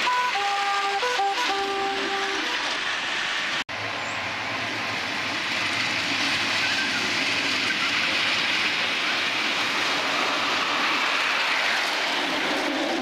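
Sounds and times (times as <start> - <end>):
miniature steam locomotive running: 4.5 - 13.0.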